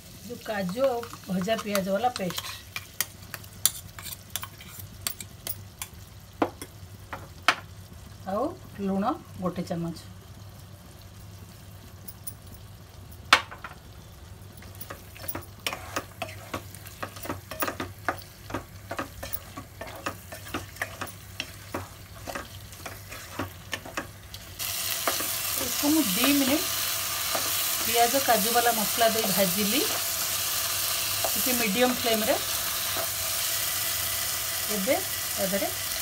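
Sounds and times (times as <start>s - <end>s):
frying sizzle: 0.0s - 36.0s
spoon clinking and scraping pan: 1.0s - 6.7s, 14.6s - 24.1s.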